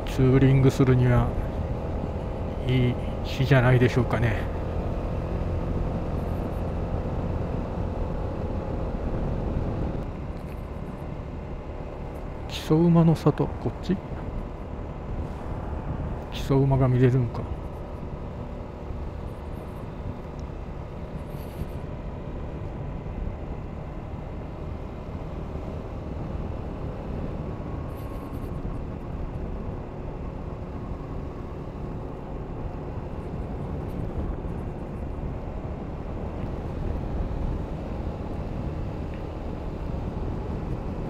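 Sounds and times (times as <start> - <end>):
road and wind rumble: 0.0 - 41.0.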